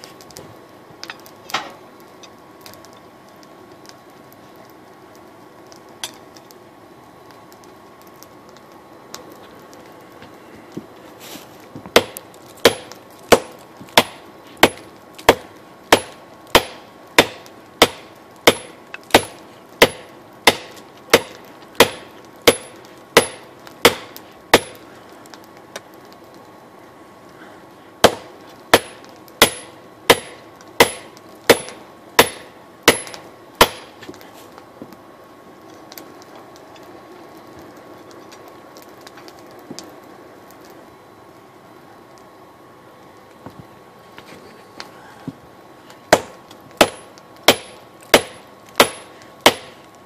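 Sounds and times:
steady background hiss: 0:00.0 - 0:50.0
hammer striking steel on anvil: 0:12.0 - 0:24.8, 0:28.0 - 0:33.9, 0:46.1 - 0:49.7.

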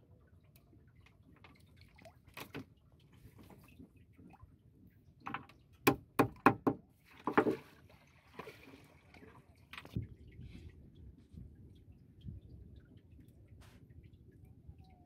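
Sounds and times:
sharp knocks on wood: 0:05.9 - 0:07.6.

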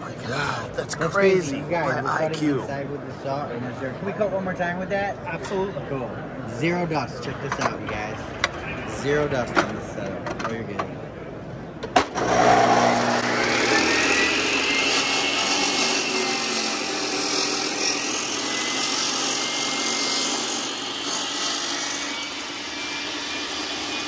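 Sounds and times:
dust vacuum running: 0:12.2 - 0:16.0
masonry saw cutting concrete: 0:12.2 - 0:24.0.

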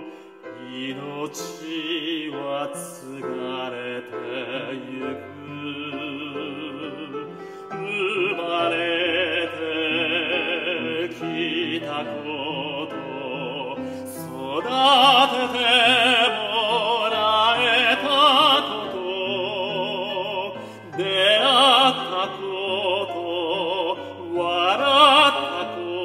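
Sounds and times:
man singing operatically: 0:00.0 - 0:26.0.

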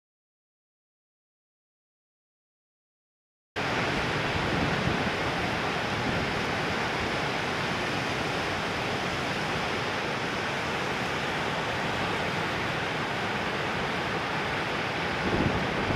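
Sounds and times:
ocean surf breaking: 0:03.6 - 0:15.9.

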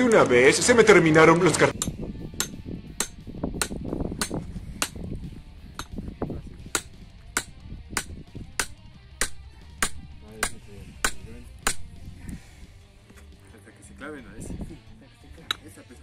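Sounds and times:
hammer striking metal wedge: 0:01.8 - 0:05.0, 0:05.8 - 0:06.0, 0:06.7 - 0:12.0.

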